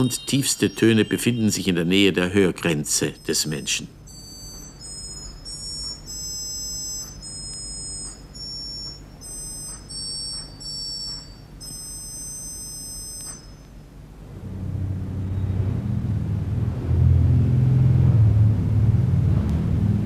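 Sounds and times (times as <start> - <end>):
very high organ pipe notes: 0.0 - 13.7
faint low hum: 0.0 - 20.0.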